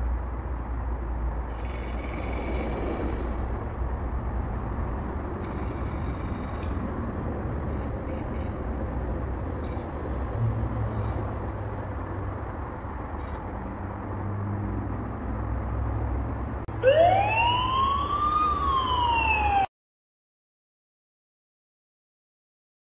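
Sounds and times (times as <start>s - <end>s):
alarm siren wailing: 16.7s - 19.7s.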